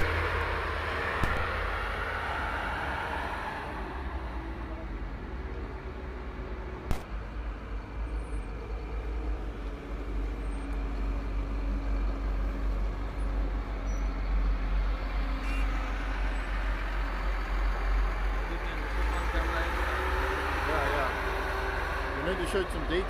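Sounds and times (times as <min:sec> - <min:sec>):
diesel engines rumbling: 0:00.0 - 0:23.0
sharp click: 0:01.2 - 0:01.6
vehicle rolling past: 0:07.4 - 0:23.0.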